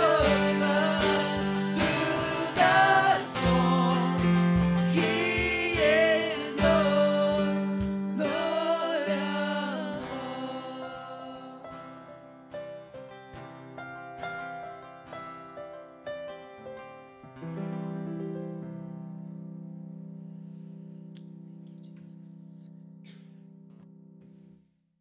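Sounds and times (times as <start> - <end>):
cajon: 0.0 - 7.1
voices singing: 0.0 - 11.6
keyboard: 0.0 - 23.9
acoustic guitar: 0.0 - 24.6.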